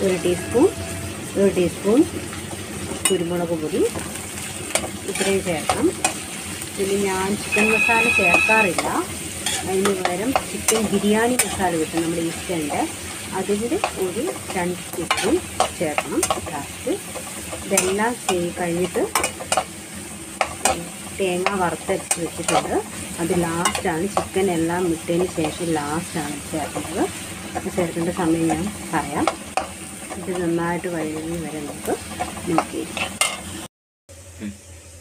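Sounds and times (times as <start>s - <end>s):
onions sizzling: 0.0s - 35.0s
spatula scraping pan: 4.7s - 6.4s, 7.5s - 19.7s.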